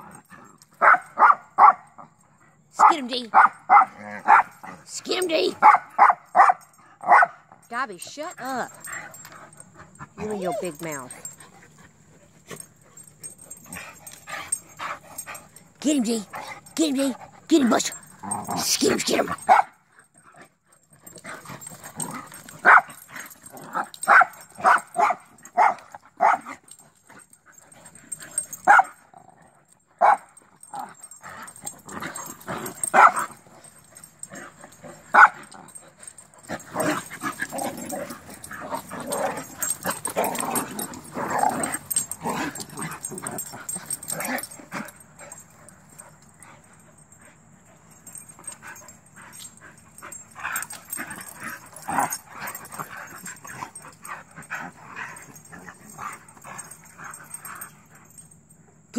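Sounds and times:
dogs barking: 0:00.8 - 0:02.0, 0:02.8 - 0:04.7, 0:05.5 - 0:07.5, 0:18.4 - 0:19.8, 0:21.9 - 0:26.7, 0:28.4 - 0:29.0, 0:30.0 - 0:34.3, 0:34.9 - 0:35.8.

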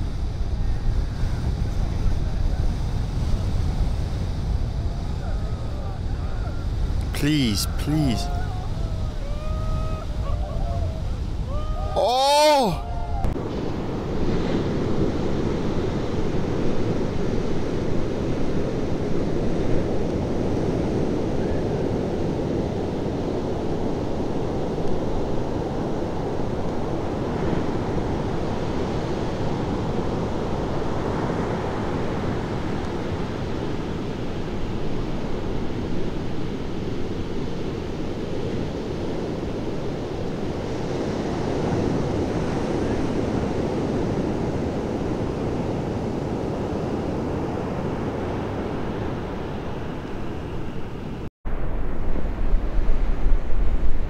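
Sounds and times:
ocean surf breaking: 0:03.1 - 0:17.9
wind on microphone: 0:12.8 - 0:54.0.

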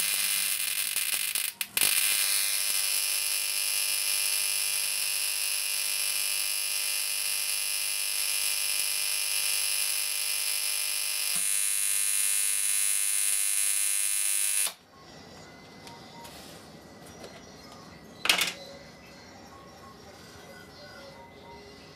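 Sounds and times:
electric arc buzzing: 0:00.0 - 0:14.8.

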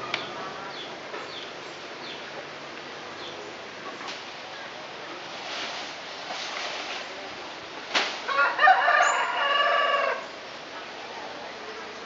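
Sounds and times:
rooster crowing: 0:08.3 - 0:10.2.

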